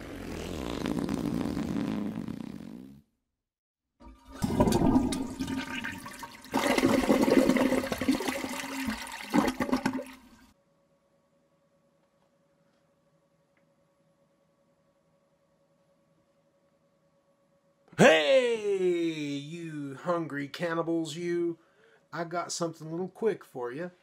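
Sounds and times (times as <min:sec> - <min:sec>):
toilet flushing: 0:04.0 - 0:10.5.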